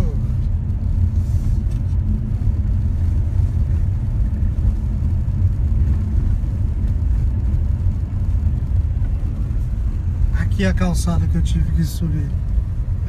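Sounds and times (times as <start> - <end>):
car cabin rumble on dirt road: 0.0 - 13.0.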